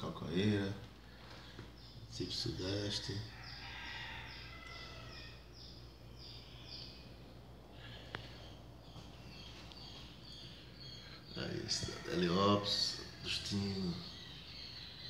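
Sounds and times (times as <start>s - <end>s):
steady low hum: 0.0s - 15.0s
small bird singing: 0.1s - 15.0s.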